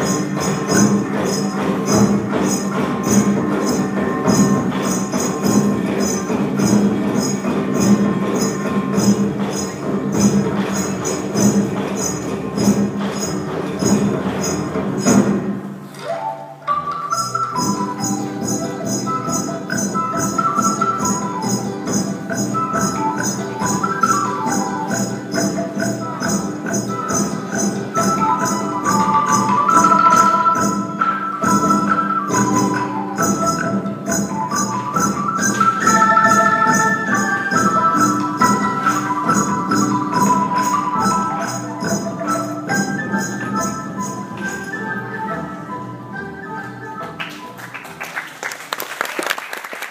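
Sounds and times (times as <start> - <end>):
quick percussion beat: 0.0 - 15.8, 17.1 - 45.2
traditional ensemble music: 0.0 - 49.8.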